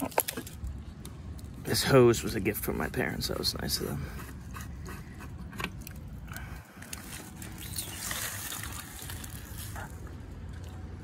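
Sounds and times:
water splashing and trickling: 5.8 - 11.0.

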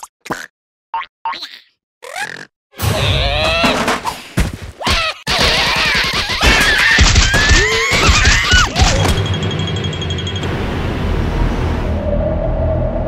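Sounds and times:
thumps and crashes: 2.8 - 4.8
sustained music: 9.0 - 13.0.

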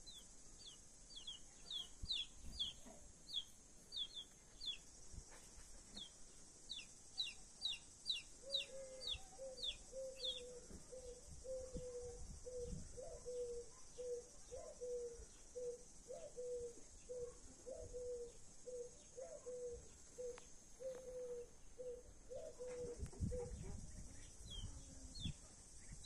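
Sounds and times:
chicks peeping: 0.1 - 4.8, 6.7 - 10.8
hen clucking: 1.7 - 4.8.

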